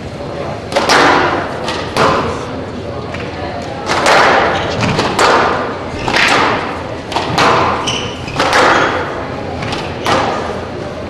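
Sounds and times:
squash ball hits echoing: 0.7 - 2.6, 3.8 - 10.6
shoe squeak on court floor: 7.7 - 8.4.

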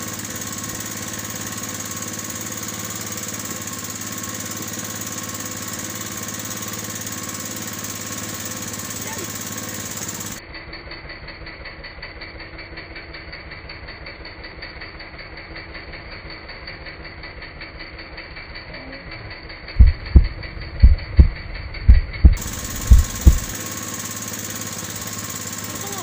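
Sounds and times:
small boat engine knocking: 0.0 - 10.4, 19.3 - 26.0.

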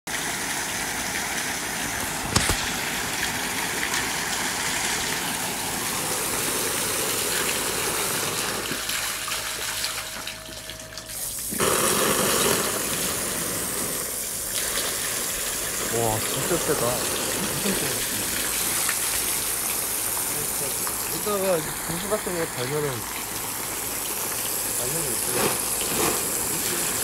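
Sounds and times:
spray splashing onto water: 0.1 - 10.3, 11.2 - 27.0
water jet spraying: 0.4 - 10.4, 11.2 - 27.0
sharp knock: 2.2 - 2.8.

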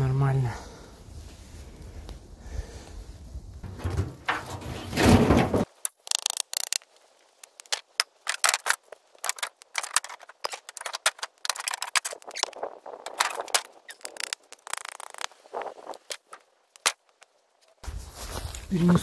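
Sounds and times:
wooden boards knocking and scraping: 3.6 - 5.8, 7.6 - 12.4
dry leaves rustling underfoot: 6.8 - 10.9, 12.2 - 19.0.

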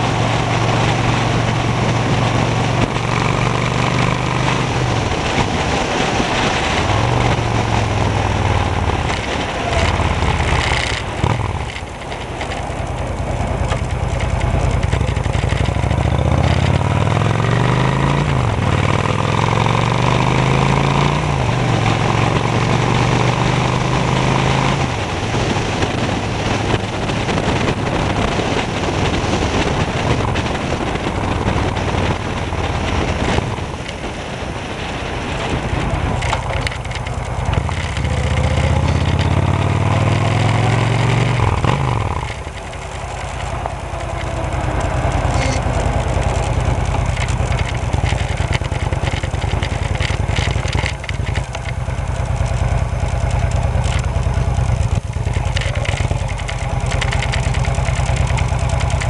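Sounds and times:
motorcycle engine running: 0.0 - 59.0.

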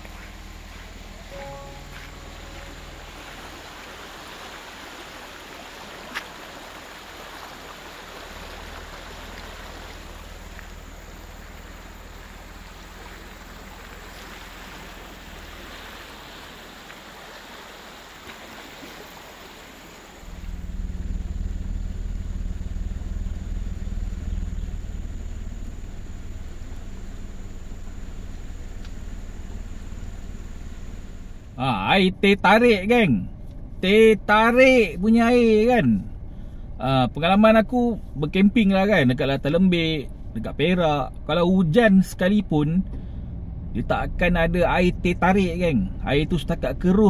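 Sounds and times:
loud low rumble: 0.0 - 4.2, 20.2 - 47.0
river water rushing: 0.0 - 20.6.

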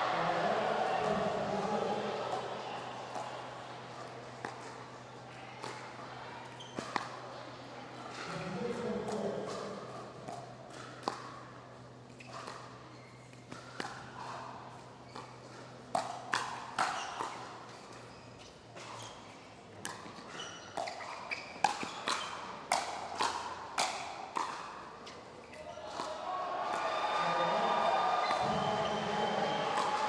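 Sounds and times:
paddles hitting plastic ball: 10.2 - 11.3, 19.8 - 24.7.

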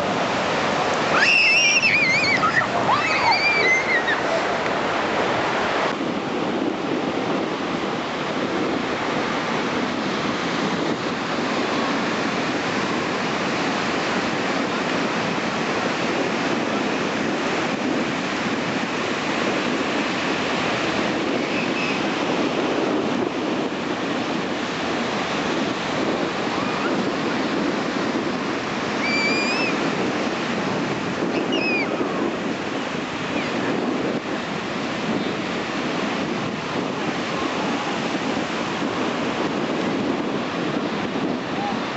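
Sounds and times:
ocean surf breaking: 0.0 - 41.9
wavering high cries: 1.1 - 4.6, 29.0 - 29.8, 31.4 - 32.0.

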